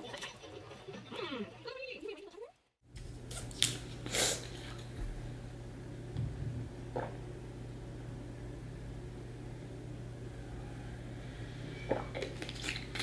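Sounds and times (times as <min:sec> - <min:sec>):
steady low hum: 0:02.9 - 0:13.0.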